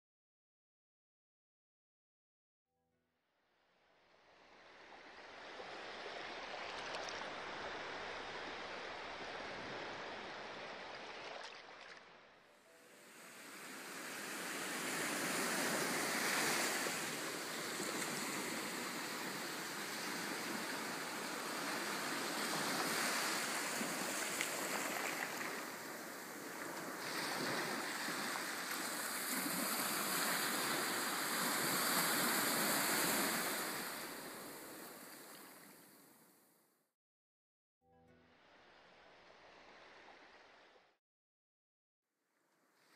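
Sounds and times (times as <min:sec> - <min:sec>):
small waves breaking on beach: 0:04.6 - 0:36.1.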